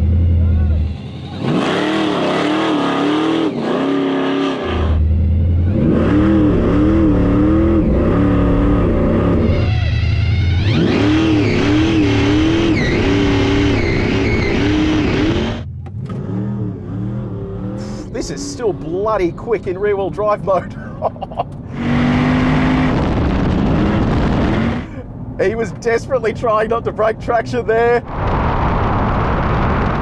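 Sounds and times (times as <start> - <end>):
car engine revving hard: 1.3 - 9.6, 10.5 - 19.1, 21.7 - 25.0.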